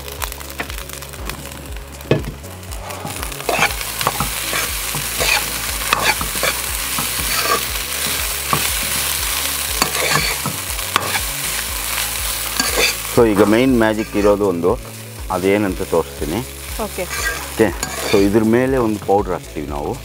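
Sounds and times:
hot oil sizzling: 0.0s - 20.0s
spoon scraping a pan: 2.8s - 9.0s, 9.8s - 11.3s, 12.4s - 14.4s, 17.0s - 18.4s.

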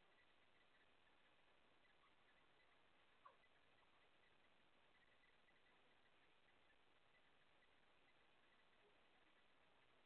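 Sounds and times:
low steady hiss: 0.0s - 10.0s
faint high ticks: 1.9s - 9.5s.

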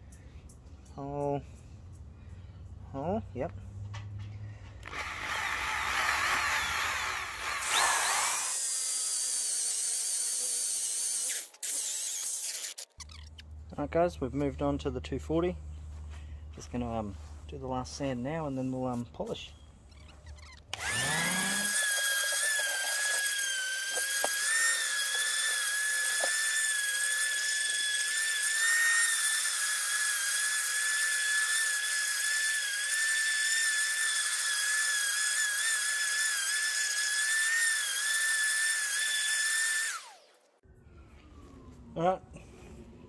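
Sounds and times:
orbital sander whining: 4.8s - 12.2s, 20.7s - 40.2s.

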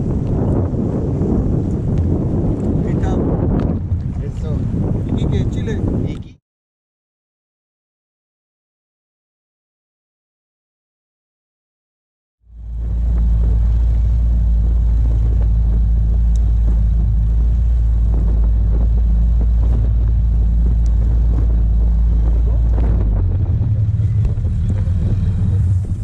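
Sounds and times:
outboard motor droning: 0.0s - 5.8s, 12.4s - 26.0s
rushing wind: 0.0s - 6.4s, 12.5s - 26.0s
rushing water: 12.6s - 26.0s.

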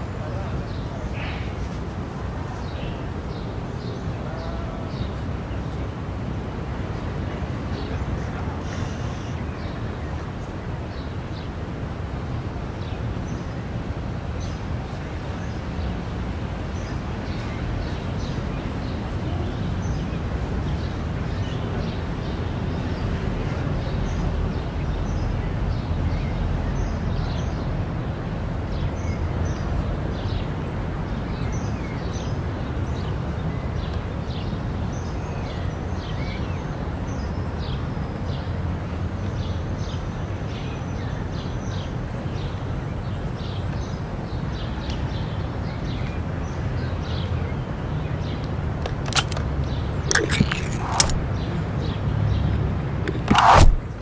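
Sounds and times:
birds chirping: 48.0s - 54.0s.

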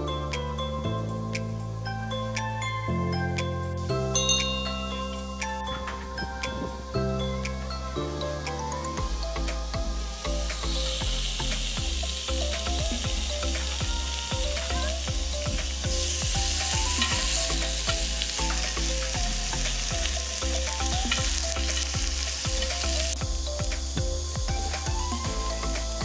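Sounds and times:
background music with beat and bass: 0.0s - 26.0s
pork sizzling on a grill plate: 9.0s - 26.0s.

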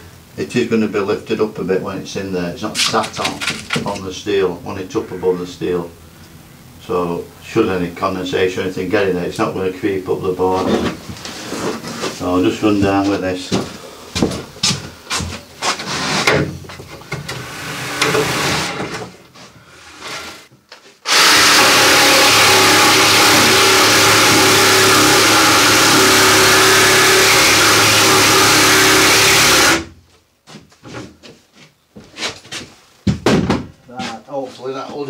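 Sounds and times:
jigsaw cutting plywood: 17.3s - 19.0s, 21.0s - 29.9s
board knocking and clattering: 33.1s - 33.8s.

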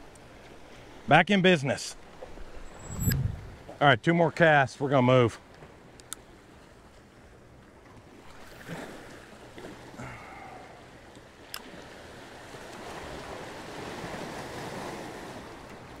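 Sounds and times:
waves breaking over rocks: 11.4s - 16.0s.

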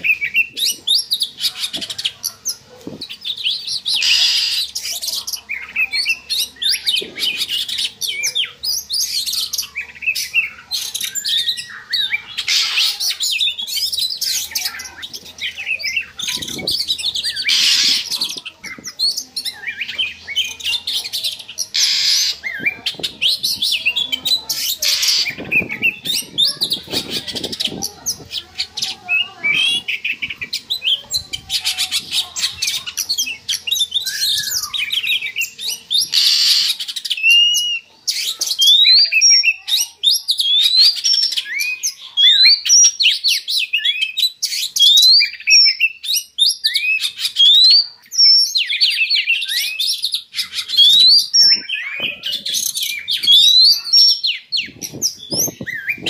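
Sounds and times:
bird harsh scratchy chatter: 0.0s - 56.0s
bird whistled song: 2.9s - 20.8s, 32.0s - 56.0s.

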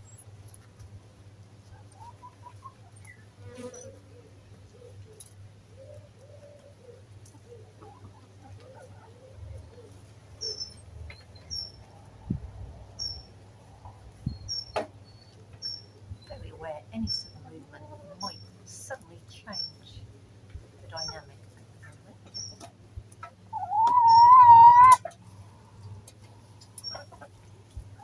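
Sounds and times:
hens clucking softly: 0.5s - 12.6s, 20.0s - 28.0s
bird chirping: 9.7s - 11.9s, 13.0s - 13.3s, 14.2s - 17.4s, 22.2s - 22.7s, 23.5s - 25.0s, 26.7s - 27.3s.

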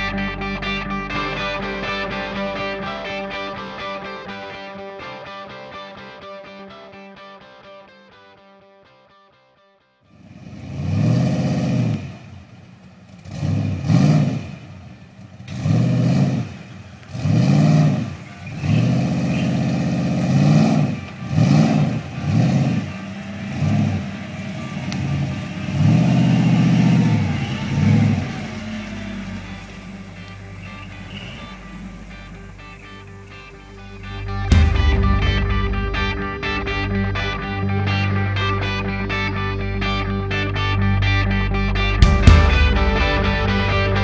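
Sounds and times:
engine revving hard: 10.2s - 12.5s, 13.2s - 40.4s.

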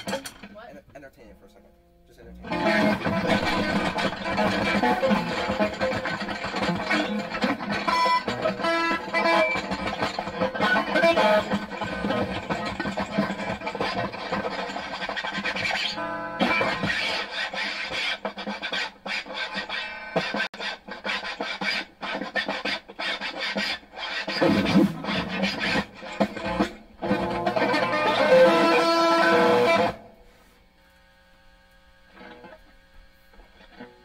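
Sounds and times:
band music with rasping electric guitar: 2.4s - 30.2s.

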